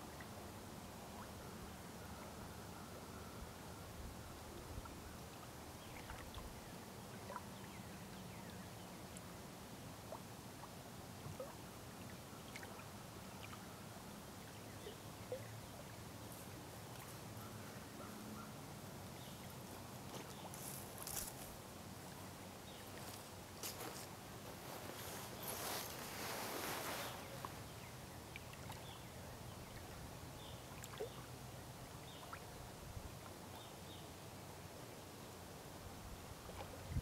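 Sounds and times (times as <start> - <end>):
short rustle: 19.6 - 21.6, 22.9 - 27.7.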